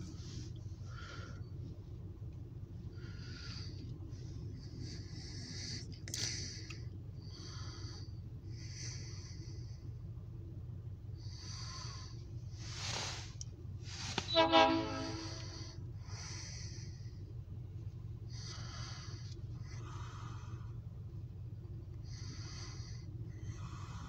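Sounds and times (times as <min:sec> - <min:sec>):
steady low rumble: 0:00.0 - 0:24.0
locomotive air horn blast: 0:14.2 - 0:15.8.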